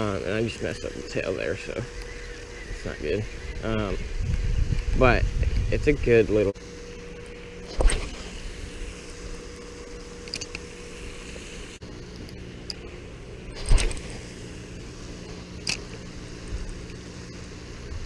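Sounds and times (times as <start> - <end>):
steady low hum: 0.0 - 18.0
fishing reel knocks and clicks: 10.2 - 10.6.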